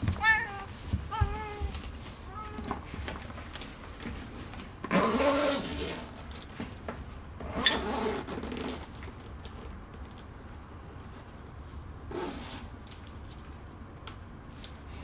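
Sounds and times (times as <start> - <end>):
cat meowing: 0.2 - 2.8
zipper being drawn: 4.9 - 6.1, 12.1 - 12.6.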